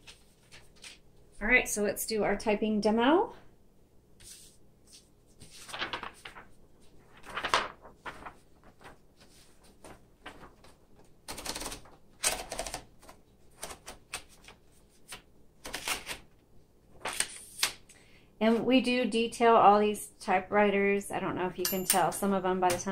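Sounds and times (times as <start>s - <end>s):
paper rustling in typewriter: 0.0s - 1.0s, 5.4s - 16.3s, 17.0s - 17.8s.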